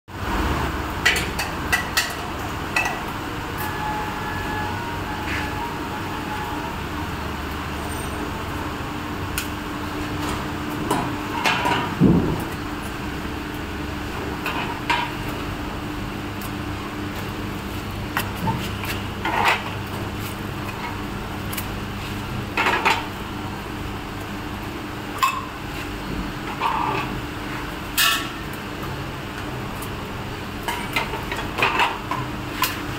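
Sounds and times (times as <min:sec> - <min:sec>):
machine humming: 0:02.3 - 0:11.3.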